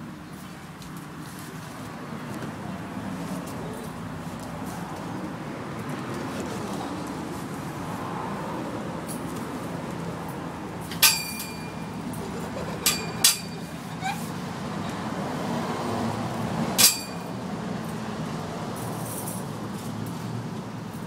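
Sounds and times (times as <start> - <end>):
sharp metallic clinks: 10.8 - 12.1, 12.8 - 13.8, 16.8 - 17.4.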